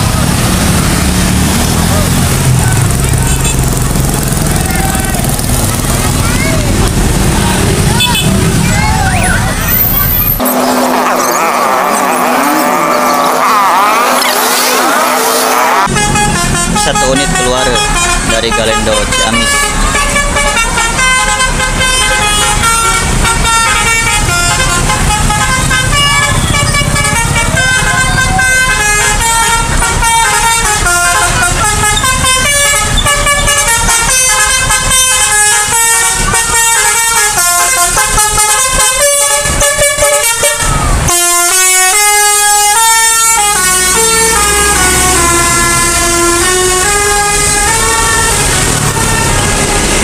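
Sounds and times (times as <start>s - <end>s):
bus engines: 0.0s - 50.0s
musical bus air horns: 1.5s - 5.4s, 7.6s - 8.6s, 9.6s - 50.0s.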